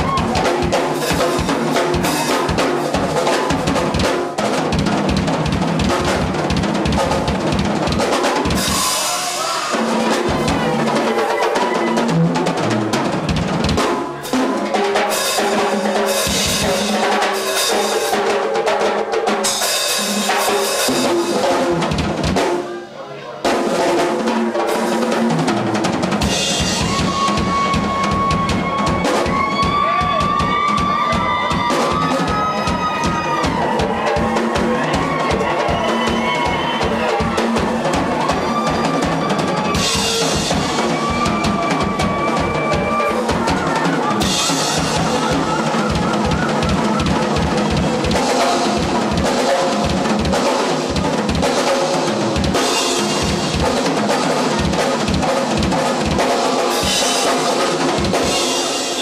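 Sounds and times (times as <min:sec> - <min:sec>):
drum rolls on toms and bass drum: 0:23.5 - 0:59.0.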